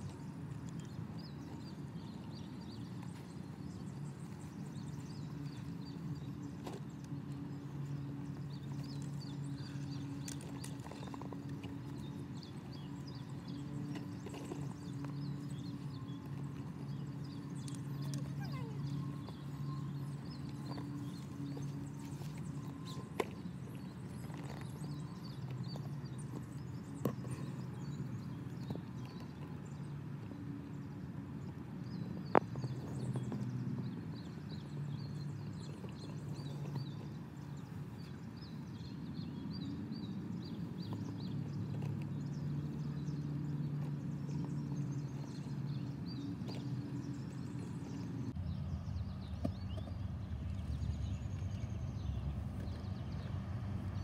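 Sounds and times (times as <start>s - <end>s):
small birds chirping: 0.0s - 54.0s
low steady rumble: 42.2s - 54.0s.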